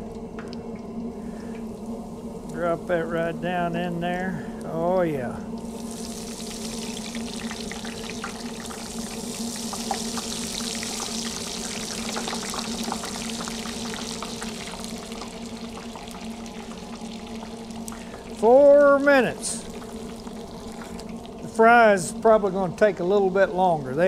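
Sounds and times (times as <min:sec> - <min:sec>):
steady low hum: 0:00.0 - 0:24.0
fries frying in hot grease: 0:05.6 - 0:21.6.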